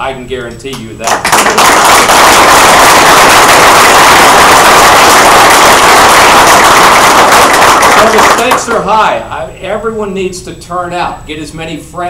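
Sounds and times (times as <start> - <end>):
loud audience applause: 1.2 - 8.7.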